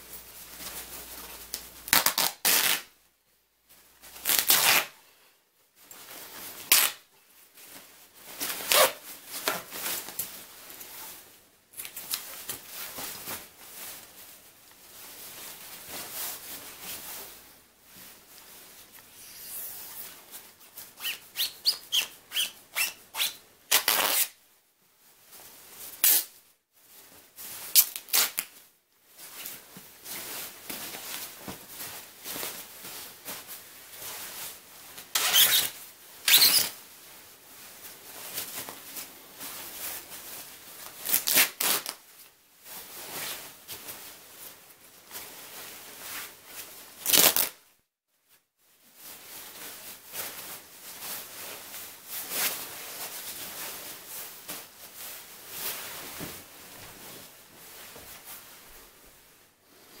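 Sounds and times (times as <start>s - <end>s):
fabric rustling and crumpling: 0.0s - 3.0s, 5.6s - 47.6s, 48.2s - 60.0s
fabric ripping: 1.9s - 2.9s, 4.2s - 5.0s, 6.7s - 7.0s, 8.6s - 9.6s, 21.0s - 24.4s, 27.7s - 28.5s, 35.1s - 36.8s, 41.0s - 42.0s, 47.0s - 47.6s.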